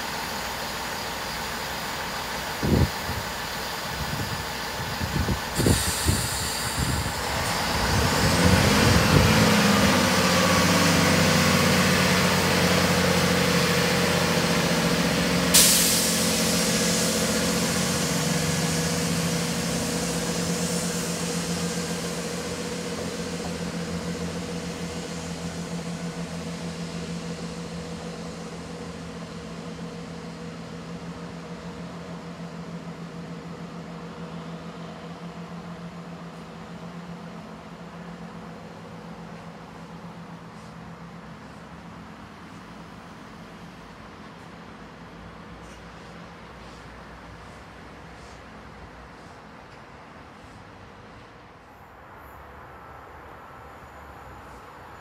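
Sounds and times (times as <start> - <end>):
air hiss: 0.0 - 9.4, 14.8 - 25.2
train diesel engines revving: 0.0 - 55.0.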